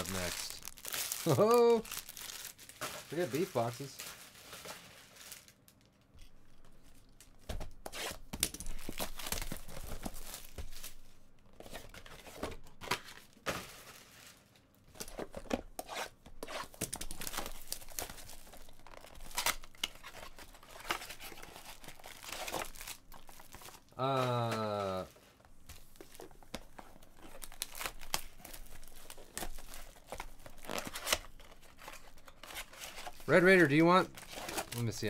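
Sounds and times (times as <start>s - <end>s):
plastic shrink wrap tearing: 0.0s - 5.8s, 16.4s - 25.1s, 27.3s - 35.0s.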